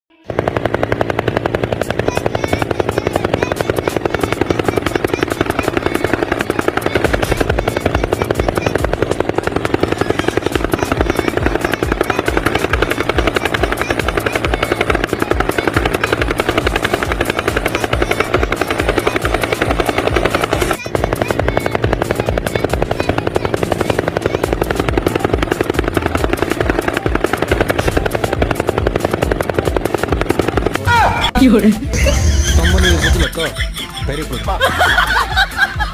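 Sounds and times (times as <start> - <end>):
rapid helicopter-like chopping: 0.1 - 35.9.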